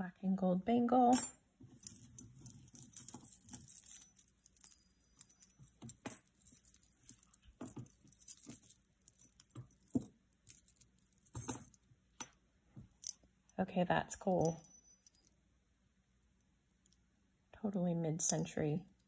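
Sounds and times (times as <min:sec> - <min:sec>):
metal jewelry jingling: 0:01.1 - 0:12.4, 0:14.3 - 0:15.4.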